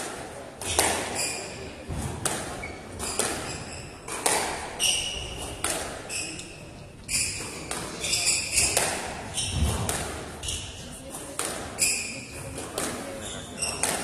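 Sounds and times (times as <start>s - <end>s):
squash ball hitting racquets and walls: 0.0s - 14.0s
shoes squeaking on wooden floor: 0.6s - 11.0s, 11.8s - 14.0s.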